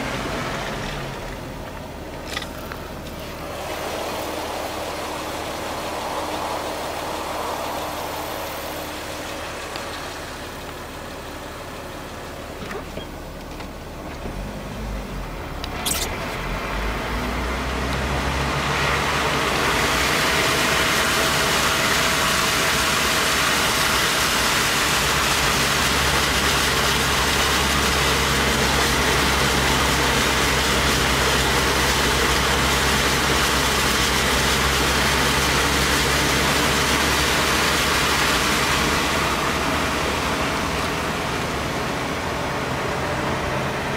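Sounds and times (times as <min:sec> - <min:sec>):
car engine running: 0:00.0 - 0:43.9
tyres rushing through water: 0:00.0 - 0:43.9.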